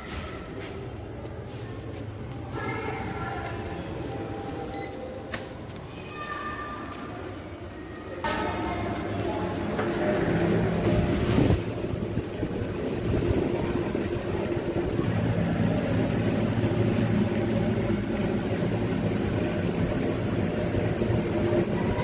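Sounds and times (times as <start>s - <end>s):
lift hum and rumble: 8.2s - 22.0s.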